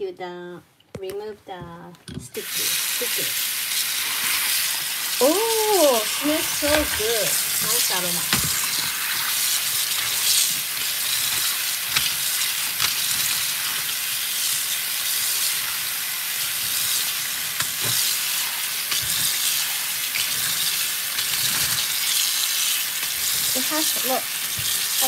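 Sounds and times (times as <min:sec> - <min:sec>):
tap water running: 0:02.2 - 0:25.0.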